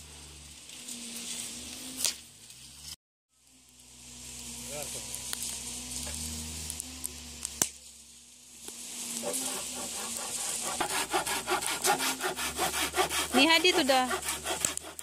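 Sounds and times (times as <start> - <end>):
firewood crackling and hissing: 0.0 - 15.0
fire popping: 3.5 - 15.0
fast even scraping: 9.2 - 15.0.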